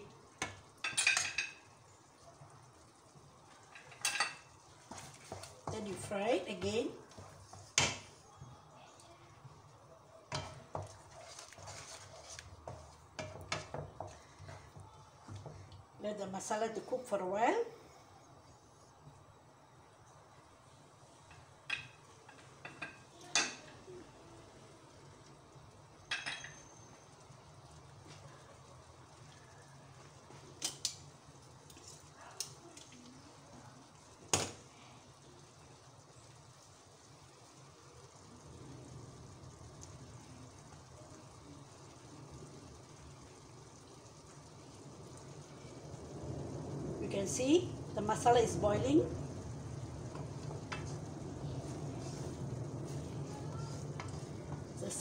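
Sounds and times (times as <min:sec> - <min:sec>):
gas stove hum: 0:00.0 - 0:55.0
sauce simmering in a pan: 0:00.0 - 0:55.0
wooden spatula scraping a wok: 0:04.6 - 0:08.2, 0:10.4 - 0:15.7, 0:50.1 - 0:55.0
low steady hum: 0:34.7 - 0:55.0.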